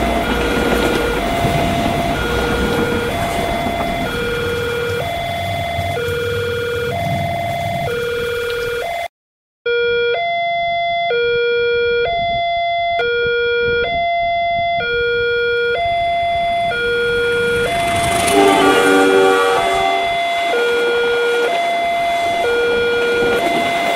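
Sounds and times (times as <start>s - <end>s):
approaching train rushing: 0.0s - 8.8s, 15.8s - 23.9s
two-tone crossing alarm: 0.0s - 9.1s, 9.7s - 23.9s.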